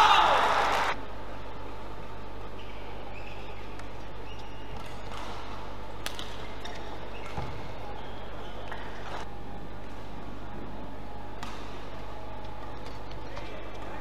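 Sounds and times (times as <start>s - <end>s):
shoes squeaking on court: 2.5s - 5.3s, 6.6s - 9.2s
racket hitting shuttlecock: 4.7s - 7.7s, 11.3s - 13.2s.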